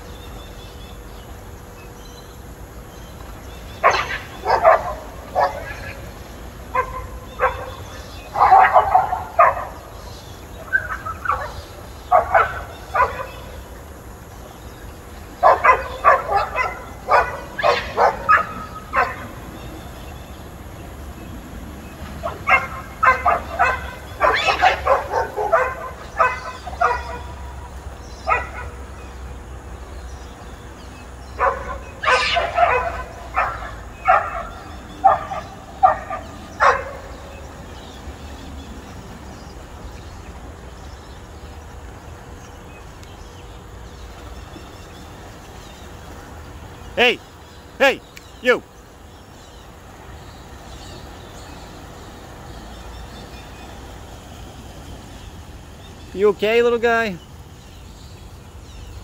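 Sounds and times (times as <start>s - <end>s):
dogs barking: 3.8s - 13.7s, 15.3s - 19.8s, 22.1s - 29.2s, 31.2s - 37.9s.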